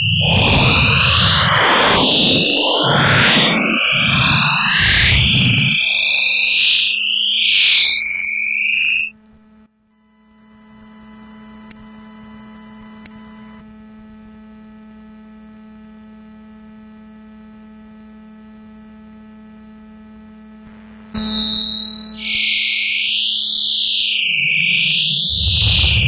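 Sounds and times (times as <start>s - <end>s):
loud synthesized tone: 0.0s - 9.6s, 21.2s - 26.0s
gliding synthesized tones: 24.5s - 26.0s.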